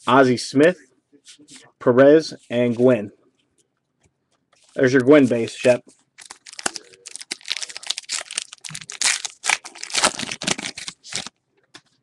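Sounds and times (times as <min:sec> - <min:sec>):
foil wrapper crinkling and tearing: 0:06.2 - 0:11.3.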